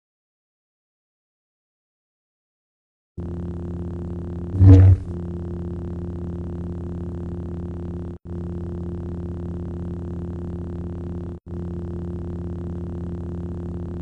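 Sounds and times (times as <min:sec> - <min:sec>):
lightsaber electric hum: 0:03.2 - 0:14.0.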